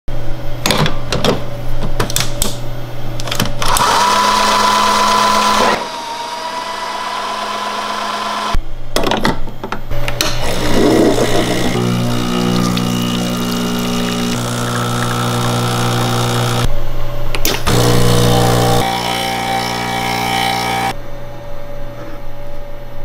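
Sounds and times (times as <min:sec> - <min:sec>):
coffee grinder whirring: 0:03.6 - 0:08.6, 0:10.4 - 0:16.7, 0:17.6 - 0:21.0.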